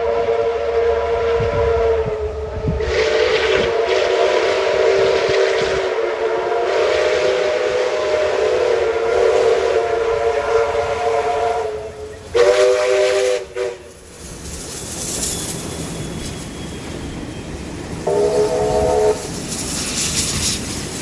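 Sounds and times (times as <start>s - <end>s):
steam locomotive whistle blasts: 0.0s - 14.0s, 15.3s - 20.4s
train rumble: 0.0s - 21.0s
hiss of steam: 2.4s - 21.0s.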